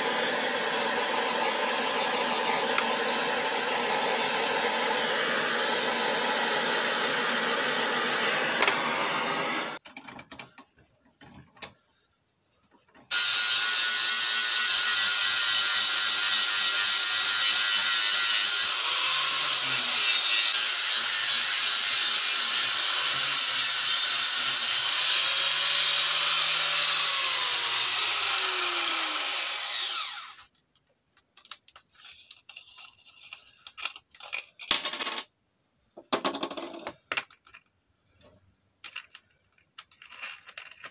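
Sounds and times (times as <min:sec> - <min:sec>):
angle grinder grinding metal: 0:00.0 - 0:09.8, 0:13.1 - 0:30.5
blowtorch hissing: 0:00.0 - 0:09.8.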